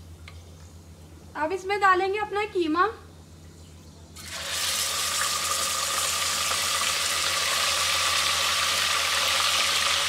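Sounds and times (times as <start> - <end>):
meat sizzling in hot oil: 4.2 - 10.0.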